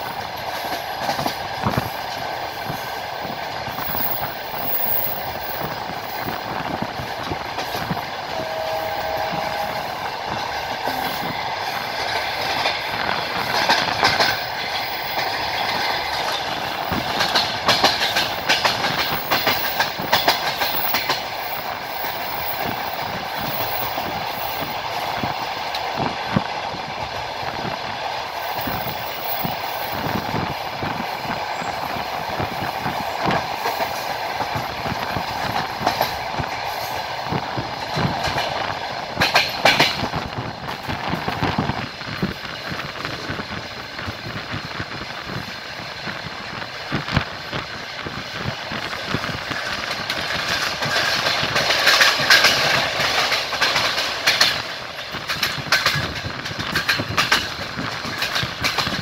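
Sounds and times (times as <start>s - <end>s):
train rolling rush: 0.0s - 59.0s
wheel clacks over rail joints: 0.4s - 8.0s, 12.0s - 26.0s, 48.8s - 59.0s.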